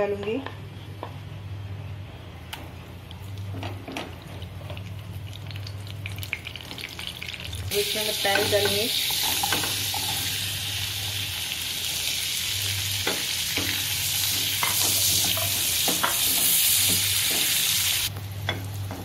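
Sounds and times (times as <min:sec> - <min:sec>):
onions sizzling in oil: 0:05.0 - 0:19.0.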